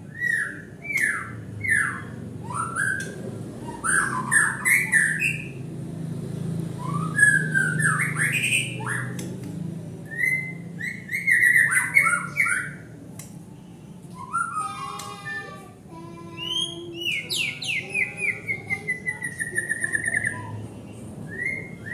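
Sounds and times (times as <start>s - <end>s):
bird singing whistled phrases: 0.1s - 5.5s, 6.8s - 9.2s, 10.1s - 12.8s, 14.1s - 14.8s, 16.4s - 20.6s, 21.3s - 21.9s.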